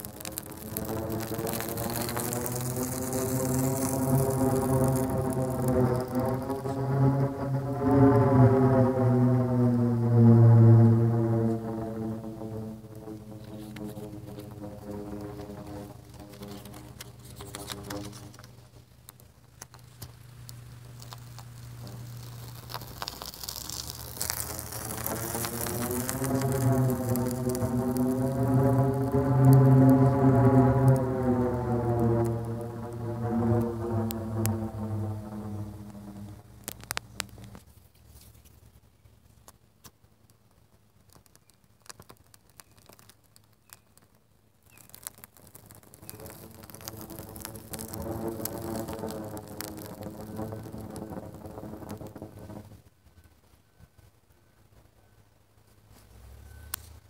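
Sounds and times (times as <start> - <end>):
flame flaring with a rush: 0.0 - 37.8, 44.7 - 52.9
fire crackles and ticks: 0.0 - 53.5
metal pipe humming low drone: 0.1 - 18.4, 24.9 - 37.5.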